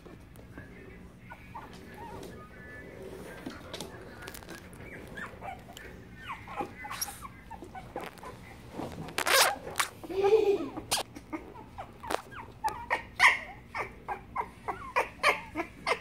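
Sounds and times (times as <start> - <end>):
puppy whimpering: 1.2 - 8.6, 10.7 - 16.0.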